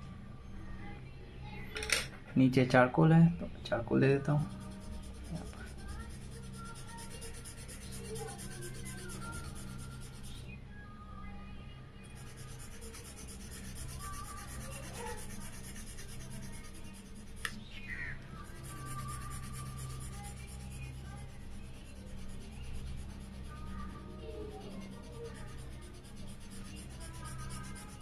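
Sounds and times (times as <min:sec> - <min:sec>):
steady low hum: 0:03.3 - 0:28.0
charcoal pencil scratching on paper: 0:04.4 - 0:10.4, 0:12.1 - 0:17.5, 0:18.4 - 0:28.0.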